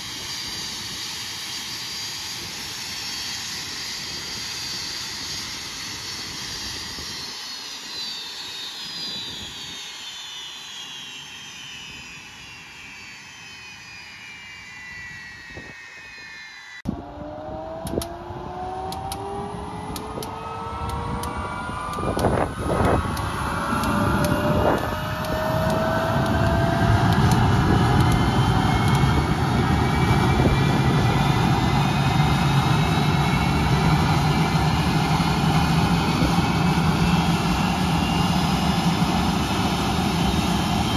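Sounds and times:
jet engine whine: 0.0 - 40.9
sharp ticks: 23.1 - 26.4.

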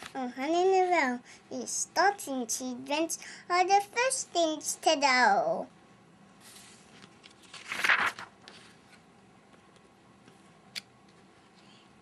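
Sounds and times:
book page rustling: 6.4 - 9.1.

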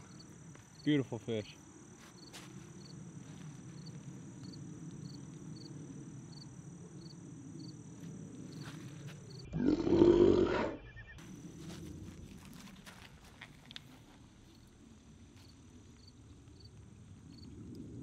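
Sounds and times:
high insect drone: 0.0 - 18.0.

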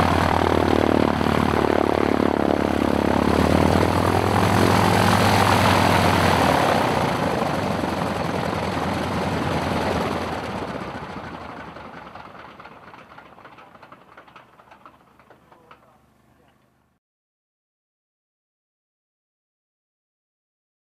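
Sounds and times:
propeller spinning down: 0.0 - 16.0
radial aircraft engine running: 0.0 - 16.3.

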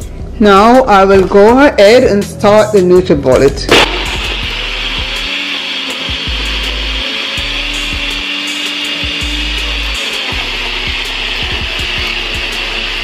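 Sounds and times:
blender running: 3.7 - 13.0.

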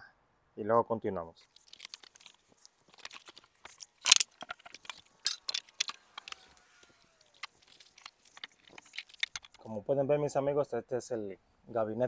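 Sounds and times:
cardboard and plastic rustling: 1.4 - 9.7.

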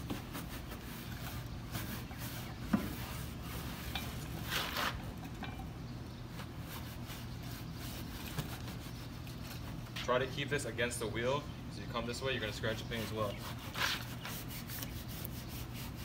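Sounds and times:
brush scrubbing: 0.0 - 5.0, 6.6 - 10.0, 12.6 - 16.0.

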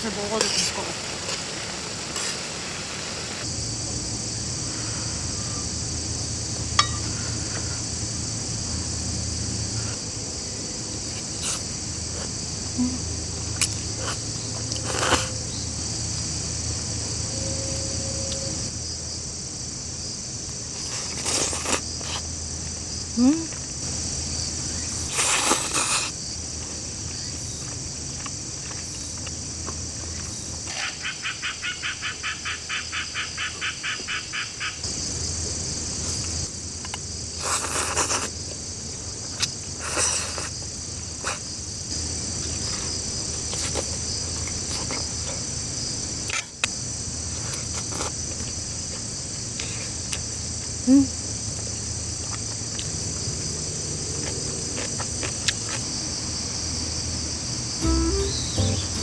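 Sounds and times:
insect pulsed call: 0.0 - 28.0, 28.6 - 44.6, 56.2 - 59.0
crickets trilling: 0.0 - 59.0.

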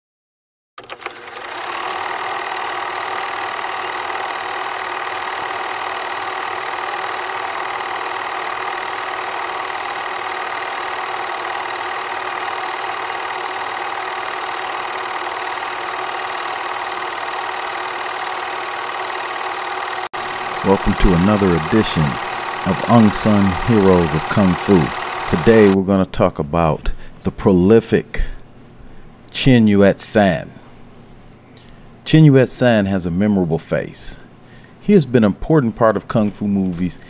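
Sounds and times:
film projector clattering: 0.8 - 25.8.

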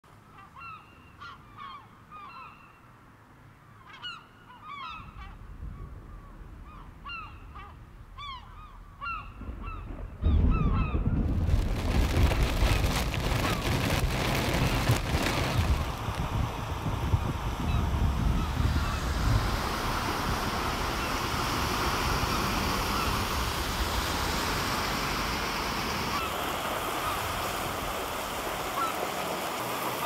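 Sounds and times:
gulls calling: 3.8 - 11.3, 17.6 - 23.6, 24.6 - 30.0
loud steady rushing noise: 11.4 - 30.0.

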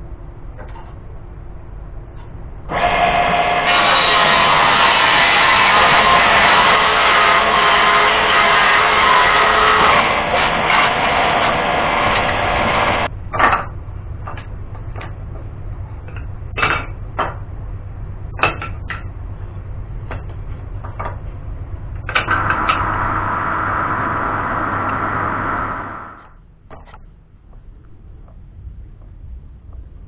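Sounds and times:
steady low hum: 0.0 - 30.0
drill press running: 2.7 - 13.1, 22.0 - 26.4
table saw cutting wood: 2.7 - 13.1, 22.2 - 26.3.

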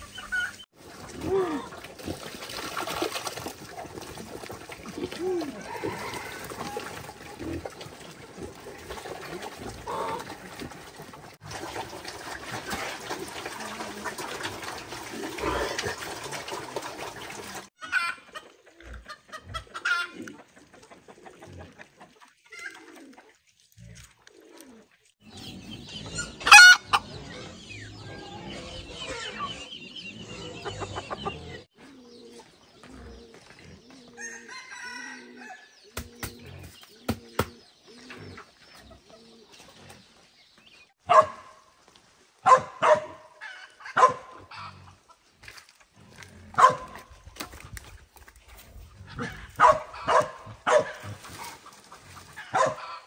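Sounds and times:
chickens clucking: 0.0 - 40.3, 42.5 - 53.0
pigeons cooing: 3.9 - 11.1, 18.0 - 40.2, 48.5 - 53.0.

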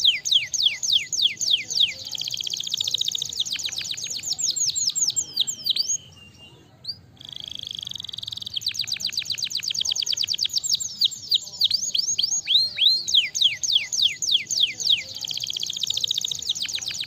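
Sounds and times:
canary trilling: 0.0 - 17.0.

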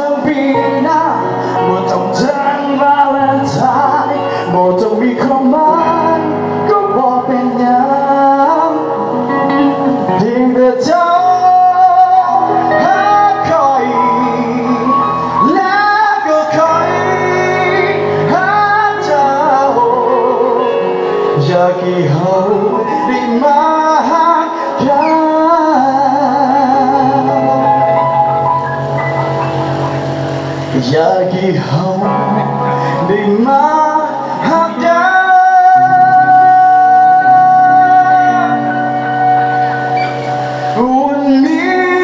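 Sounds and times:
electric guitar: 0.0 - 42.0
man singing with vibrato: 0.0 - 42.0
piano: 0.0 - 42.0.

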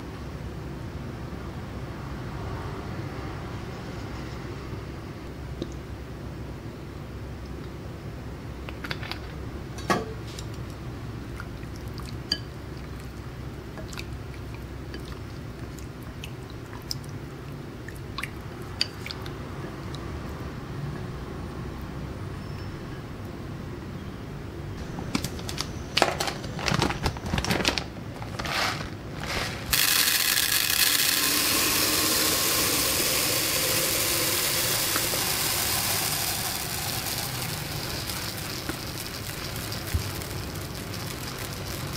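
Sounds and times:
rice pouring into plastic container: 26.7 - 41.9
seasoning shaker clicks: 29.7 - 41.9.

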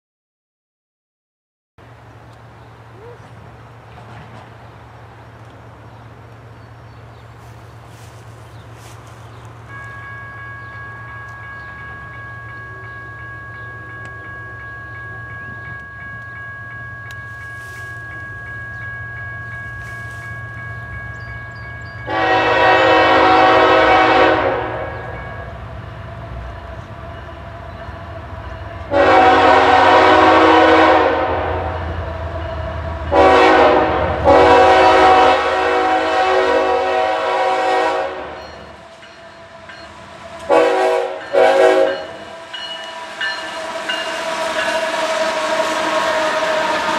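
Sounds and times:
locomotive engine rumble: 1.8 - 46.9
locomotive air horn blasts: 22.0 - 25.5, 28.8 - 32.0, 33.1 - 39.6, 40.3 - 46.9.

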